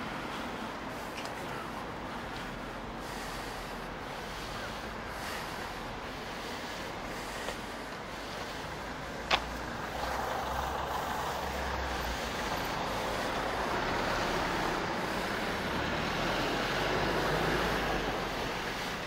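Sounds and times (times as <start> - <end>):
large vehicle passing: 8.8 - 19.0.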